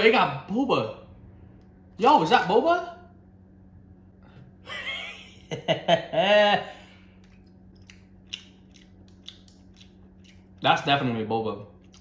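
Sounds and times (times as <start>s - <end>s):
crunchy snack chewing: 7.2s - 10.6s.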